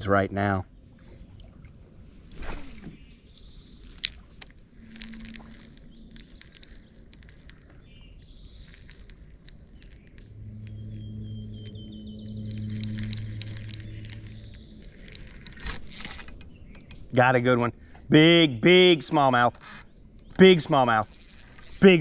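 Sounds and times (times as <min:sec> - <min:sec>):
fishing rod swish: 0:02.3 - 0:03.2
reel click: 0:02.4 - 0:17.2, 0:18.9 - 0:22.0
soft reel ticks: 0:03.8 - 0:17.2, 0:18.9 - 0:22.0.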